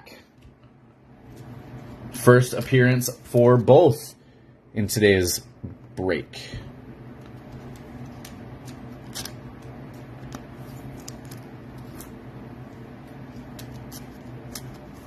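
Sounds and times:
steady low hum: 0.0 - 15.0
cards clicking and rustling: 7.2 - 12.2, 13.3 - 15.0.

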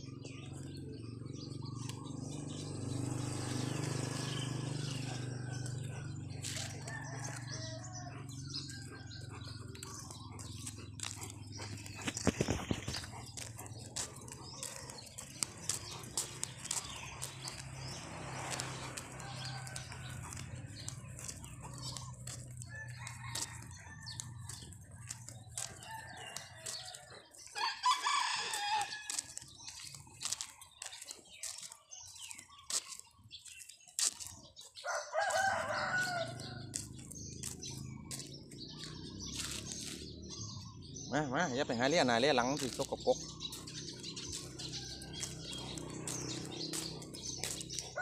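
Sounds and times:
rooster crowing: 25.8 - 29.3, 34.8 - 36.6.

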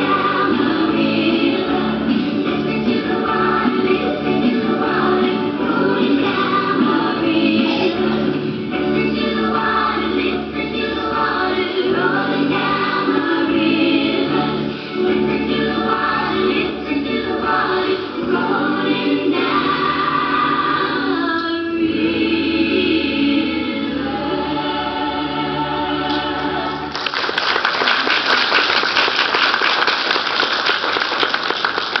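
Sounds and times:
music with group singing: 0.0 - 27.0
audience applauding: 26.9 - 32.0.

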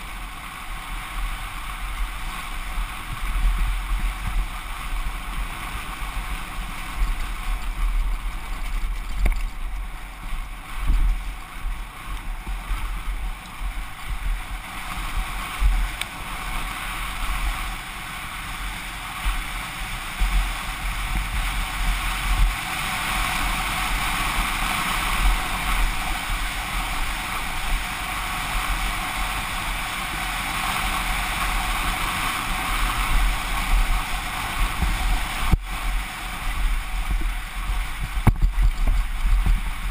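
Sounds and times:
wind buffeting microphone: 1.0 - 39.9
bike rattling and knocking: 1.8 - 17.8, 31.0 - 39.9.

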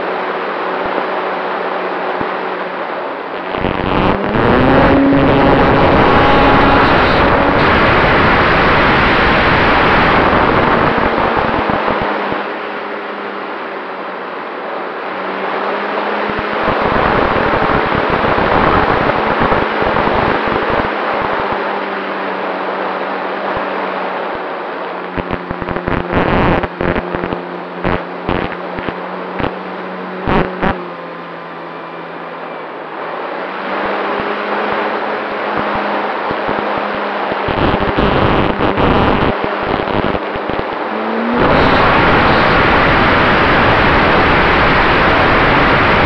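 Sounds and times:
rushing wind: 0.0 - 30.8, 31.8 - 46.0
wind buffeting microphone: 3.4 - 12.4, 37.4 - 46.0.

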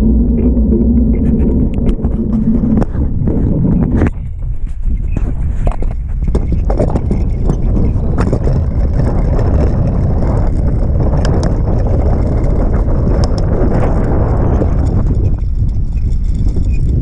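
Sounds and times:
bicycle rattling and knocking: 0.0 - 17.0
bicycle rumbling: 0.0 - 17.0
wind buffeting microphone: 0.0 - 17.0.

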